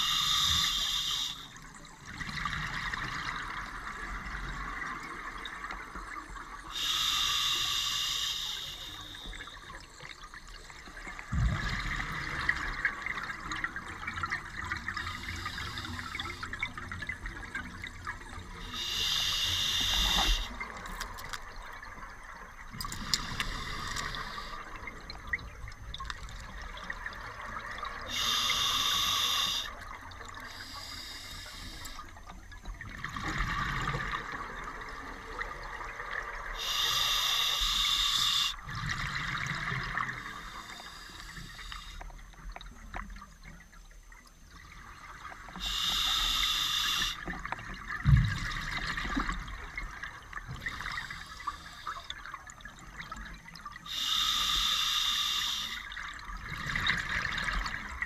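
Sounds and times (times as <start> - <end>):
scuba regulator breathing hiss: 0.0 - 1.6, 6.7 - 9.4, 15.0 - 16.5, 18.6 - 20.6, 23.0 - 24.7, 28.1 - 29.8, 30.4 - 32.1, 36.6 - 38.6, 40.2 - 42.0, 45.6 - 47.3, 50.9 - 52.1, 53.9 - 55.9.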